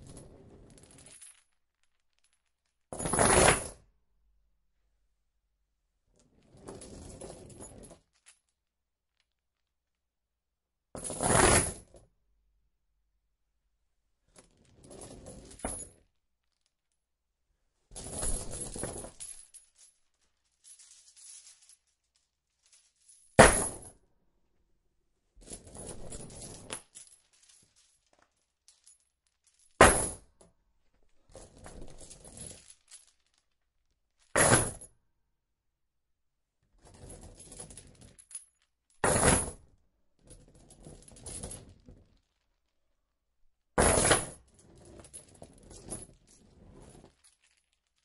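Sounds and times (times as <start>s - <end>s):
metal chain dropping and rattling: 0.0s - 3.6s, 6.3s - 8.6s, 11.0s - 11.9s, 14.3s - 16.7s, 17.9s - 24.0s, 25.4s - 33.6s, 34.2s - 34.9s, 37.0s - 42.4s, 43.8s - 48.0s.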